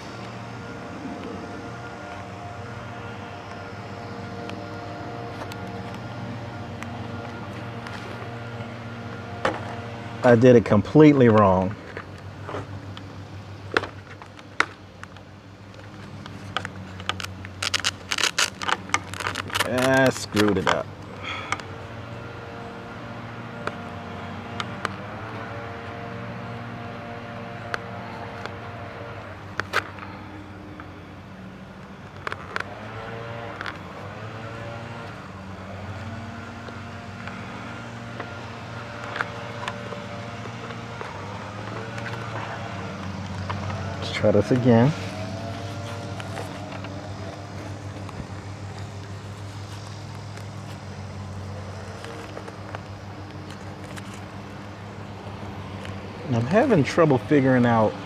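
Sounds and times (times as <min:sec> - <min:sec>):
engine droning: 0:00.0 - 0:58.0.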